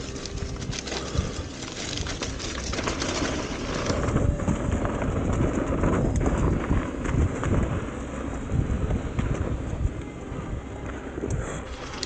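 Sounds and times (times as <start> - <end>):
bike rattling over rough ground: 0.0 - 12.0
wind buffeting microphone: 0.0 - 12.0.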